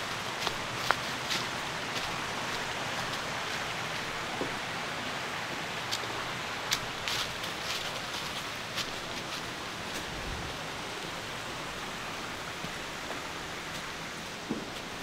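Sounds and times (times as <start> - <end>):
rushing outdoor ambience: 0.0 - 15.0.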